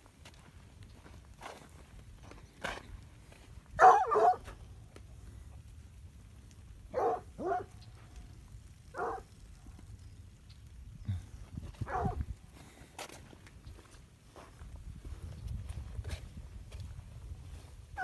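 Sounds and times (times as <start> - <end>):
dog barking: 3.8 - 4.5, 6.9 - 7.8, 8.9 - 9.3, 11.8 - 12.2.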